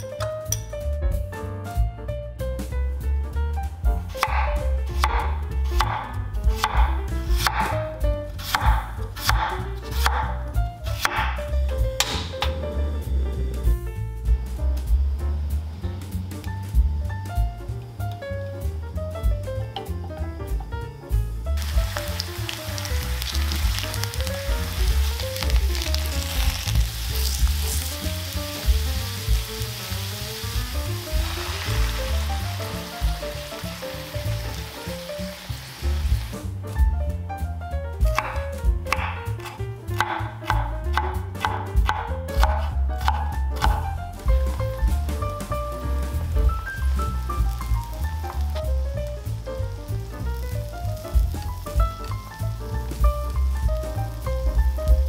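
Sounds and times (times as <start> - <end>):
background music: 0.0 - 55.0
knife slicing potato on board: 4.2 - 7.8, 8.4 - 11.4, 38.1 - 43.9
potato slices sizzling in oil: 21.6 - 36.8, 42.6 - 55.0.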